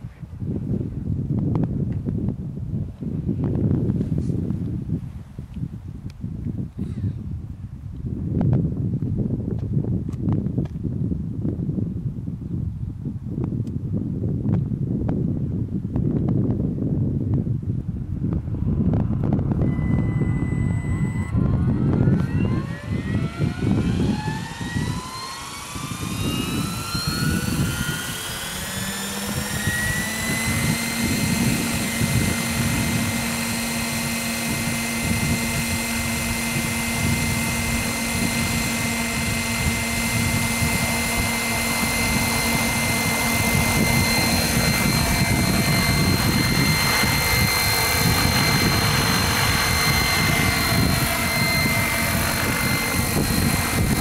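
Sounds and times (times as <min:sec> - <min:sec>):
wind buffeting microphone: 0:00.0 - 0:54.0
model helicopter rotor whine: 0:18.1 - 0:54.0.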